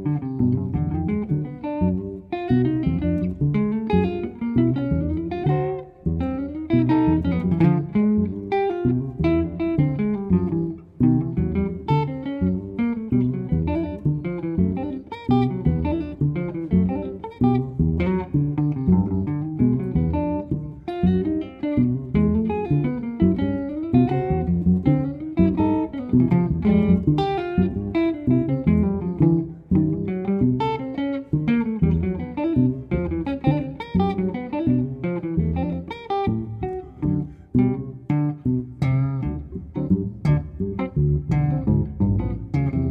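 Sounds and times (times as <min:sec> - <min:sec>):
guitar playing quick plucked notes: 0:00.0 - 0:42.9
upright double bass: 0:00.0 - 0:42.9.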